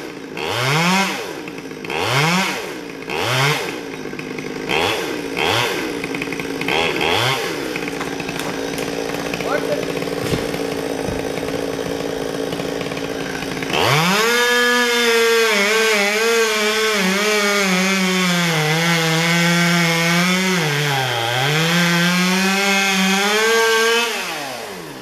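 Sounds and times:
chainsaw cutting wood: 0.0s - 25.0s.

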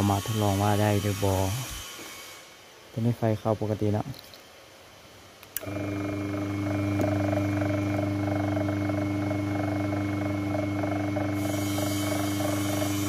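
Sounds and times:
electric motor humming: 0.0s - 2.1s, 5.6s - 13.0s.

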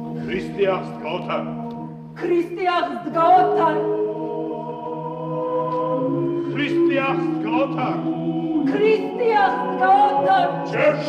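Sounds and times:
choir chanting a hymn: 3.0s - 11.0s.

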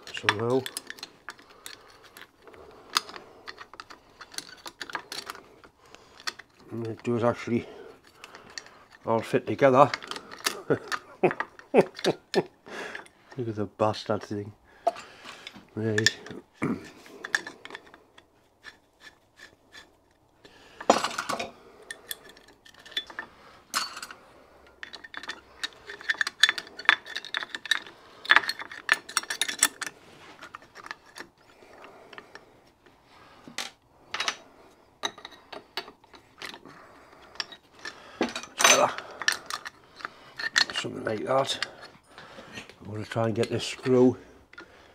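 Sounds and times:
light metal taps and scrapes: 0.0s - 12.1s, 12.9s - 16.4s, 20.8s - 44.7s.

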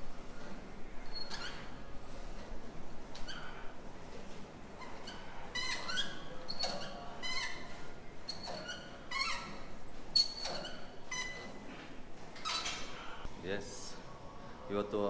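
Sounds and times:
cable machine pulleys squeaking: 0.4s - 1.9s, 3.1s - 3.7s, 4.8s - 11.6s, 12.4s - 13.1s.

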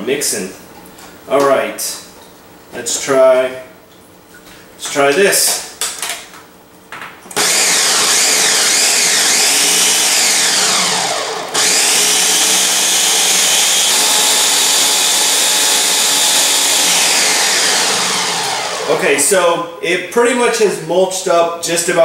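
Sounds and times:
blender crushing ice: 7.4s - 19.0s.

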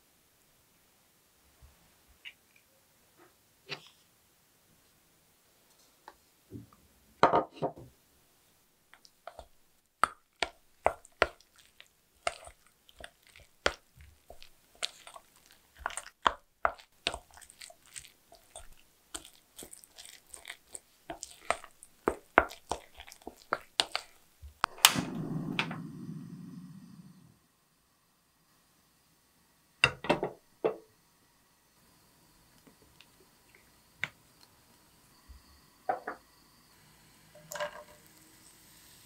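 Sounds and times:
wet squishes of stirring: 8.9s - 24.7s
gas flame rushing: 24.6s - 27.5s.

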